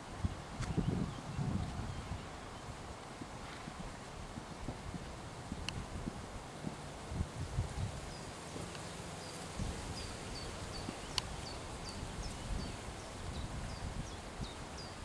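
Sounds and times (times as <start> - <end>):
steady outdoor hiss: 0.0 - 15.0
horse hooves thumping on turf: 2.9 - 11.6.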